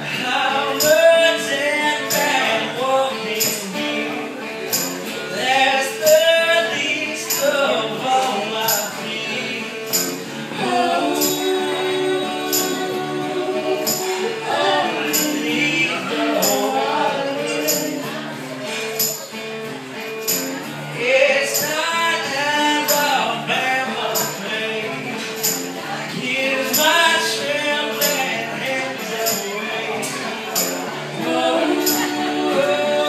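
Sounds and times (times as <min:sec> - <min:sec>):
man and women singing: 0:00.0 - 0:04.3, 0:05.2 - 0:18.4, 0:25.8 - 0:33.0
acoustic guitar: 0:00.0 - 0:33.0
keyboard: 0:00.0 - 0:33.0
tambourine beat: 0:00.1 - 0:33.0.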